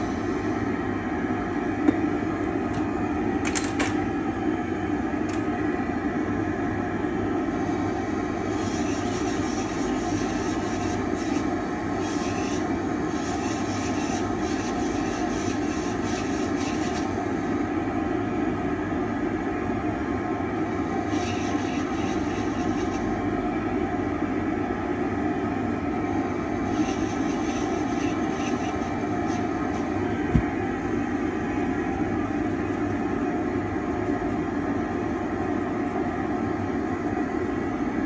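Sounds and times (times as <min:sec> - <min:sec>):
dust extractor humming: 0:00.0 - 0:38.0
dental drill grinding: 0:08.5 - 0:17.1, 0:21.1 - 0:23.1, 0:26.7 - 0:29.9.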